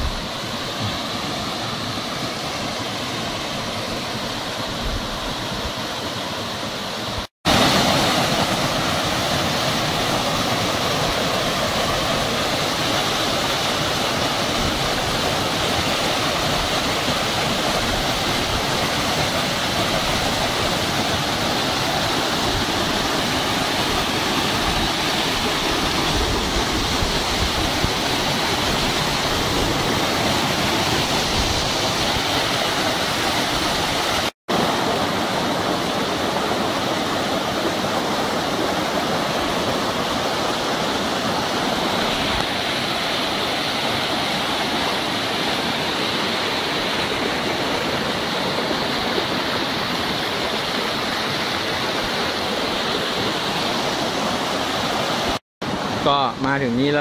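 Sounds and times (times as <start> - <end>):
waterfall roaring over boulders: 0.0 - 57.0.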